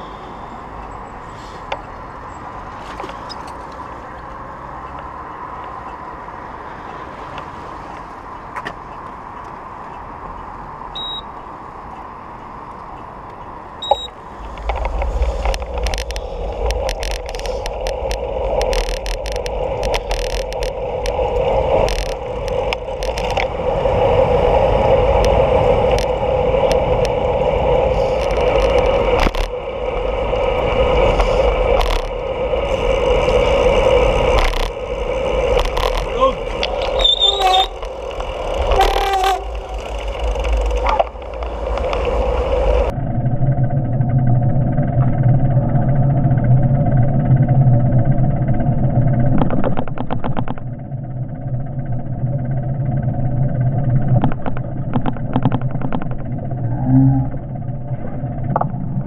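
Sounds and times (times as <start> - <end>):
road traffic noise: 0.0 - 43.0
short high electronic beeps: 11.0 - 11.2, 13.8 - 14.1
bicycle rolling: 12.0 - 59.0
click: 12.7 - 23.5, 28.2 - 29.5, 49.4 - 50.7
wind buffeting microphone: 13.2 - 59.0.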